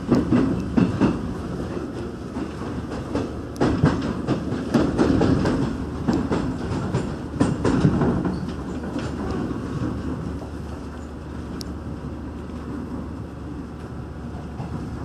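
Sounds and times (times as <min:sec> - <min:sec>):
wheels clacking over track: 0:00.0 - 0:10.6
electric train rumbling: 0:00.0 - 0:15.0.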